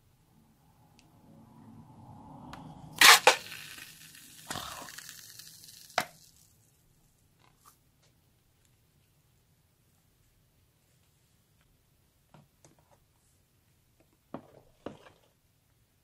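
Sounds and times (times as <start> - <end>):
sharp loud cracks: 3.0 - 6.3
foam slime crackling: 3.0 - 6.7.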